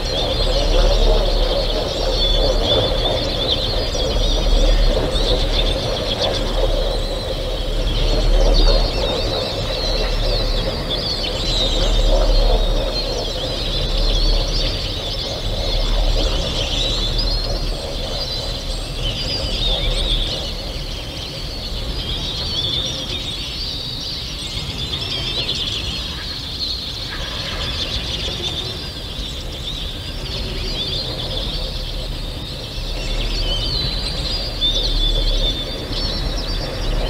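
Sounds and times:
small birds chirping: 0:00.0 - 0:37.0.

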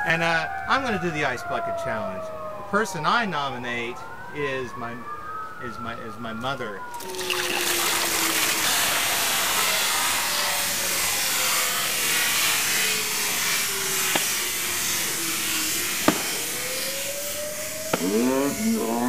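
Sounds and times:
water pouring and splashing: 0:06.9 - 0:10.2.

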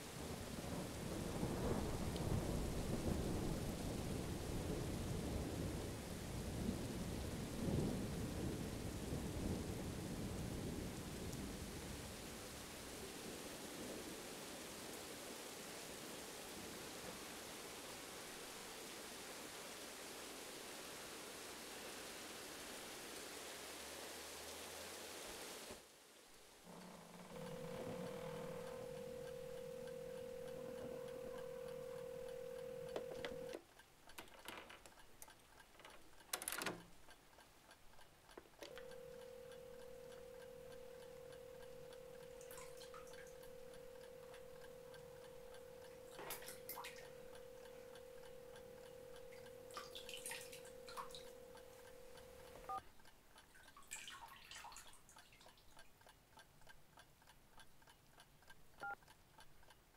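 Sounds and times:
telephone dial tone: 0:27.2 - 0:33.6, 0:38.6 - 0:52.8.

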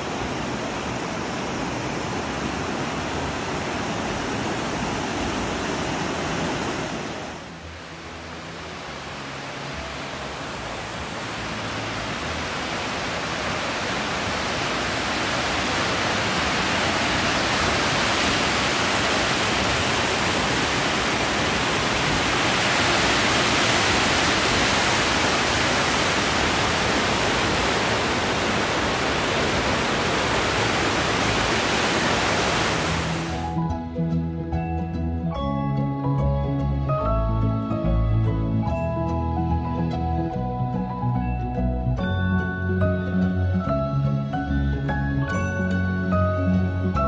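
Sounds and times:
river rushing over rapids: 0:00.0 - 0:33.6.

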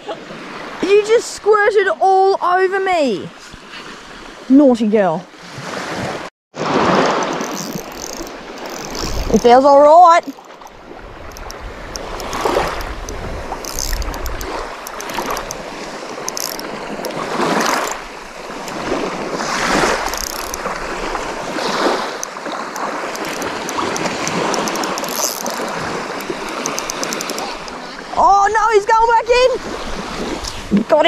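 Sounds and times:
small waves washing on sand: 0:00.0 - 0:01.6, 0:05.3 - 0:31.0
fishing reel clicking: 0:07.0 - 0:18.9, 0:19.7 - 0:21.1, 0:21.8 - 0:27.8.

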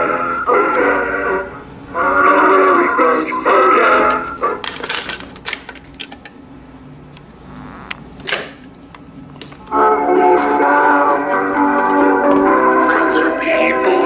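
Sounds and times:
song playing from cassette: 0:00.0 - 0:04.8, 0:09.6 - 0:14.0
plastic clicks and clatter: 0:03.9 - 0:06.4.

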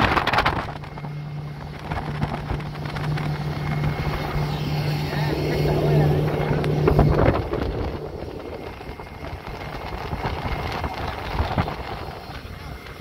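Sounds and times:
outboard motor humming: 0:00.0 - 0:13.0
wind noise: 0:00.0 - 0:13.0.

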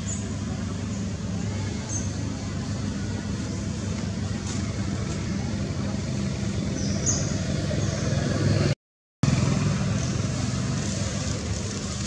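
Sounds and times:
low vehicle engine hum: 0:00.0 - 0:12.0.

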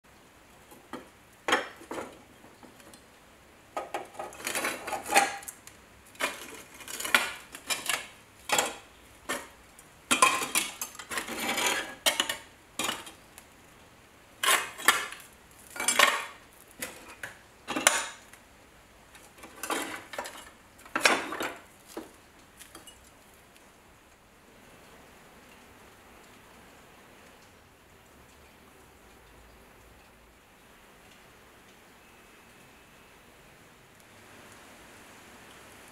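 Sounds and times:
iron tools clinking and scraping: 0:15.8 - 0:18.2.

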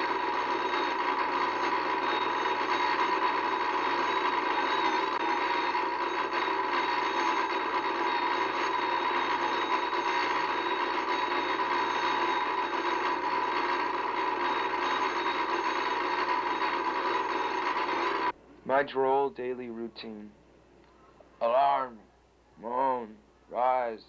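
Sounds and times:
alarm clock bell ringing: 0:00.0 - 0:18.3.

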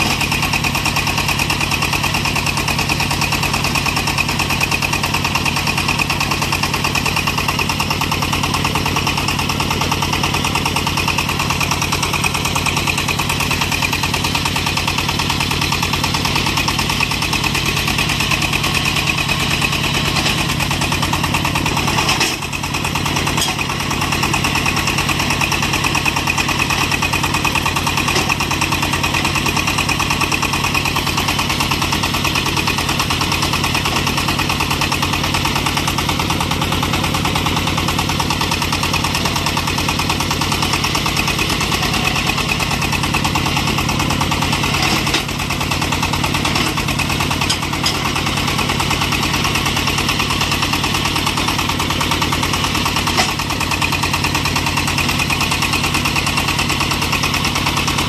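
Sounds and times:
drilling rig engine running: 0:00.0 - 0:58.0.

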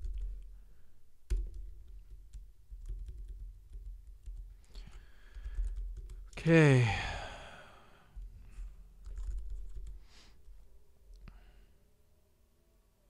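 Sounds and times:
typing on keyboard: 0:00.0 - 0:00.5, 0:01.3 - 0:06.4, 0:09.0 - 0:10.0.

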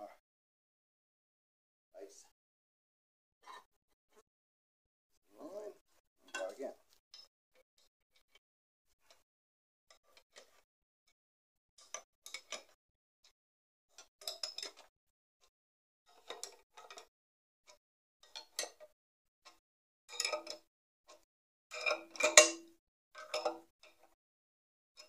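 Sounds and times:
socket ratchet clicking and clinking: 0:21.8 - 0:22.6.

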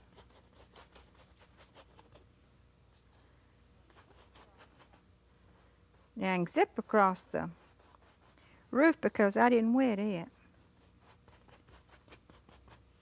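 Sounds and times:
paintbrush scrubbing canvas: 0:05.6 - 0:08.4, 0:10.2 - 0:12.8.

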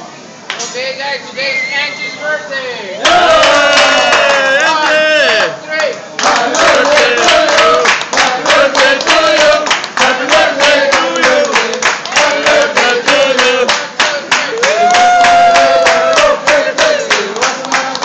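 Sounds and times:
group singing: 0:03.0 - 0:05.2, 0:06.2 - 0:18.0
people clapping a beat: 0:03.0 - 0:18.0.

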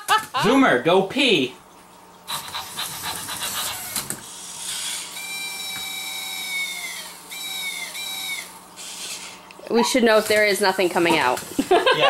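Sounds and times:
toy robot whir: 0:03.4 - 0:09.4.

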